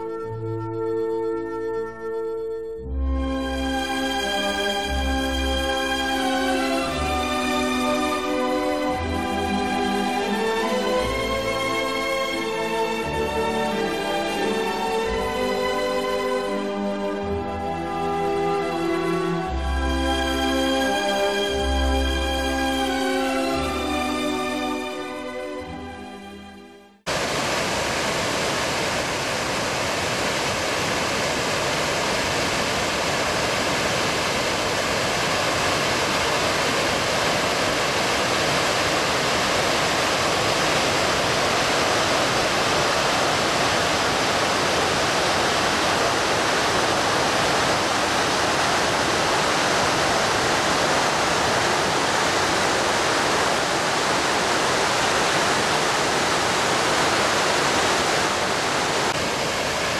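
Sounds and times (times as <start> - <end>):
music: 0.0 - 27.1
waterfall pouring over rocks: 27.1 - 59.9.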